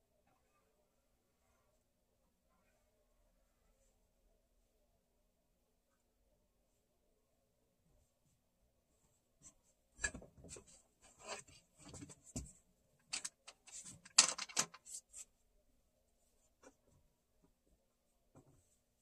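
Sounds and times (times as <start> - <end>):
rubbing or scraping noises: 9.0 - 15.4
small objects clicking and knocking: 13.1 - 15.0.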